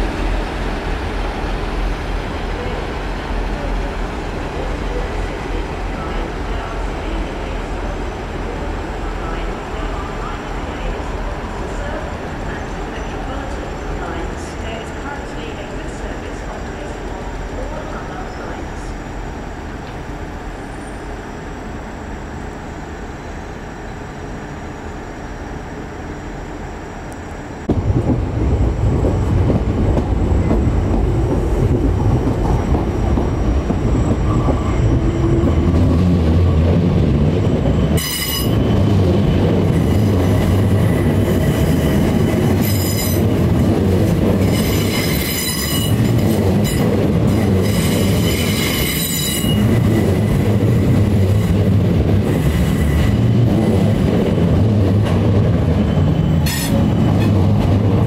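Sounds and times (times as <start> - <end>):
train wheels rumbling on rail: 0.0 - 58.0
train wheels squealing: 20.5 - 21.4, 37.7 - 38.8, 41.5 - 43.2, 44.4 - 46.0, 47.6 - 50.0, 55.8 - 57.5.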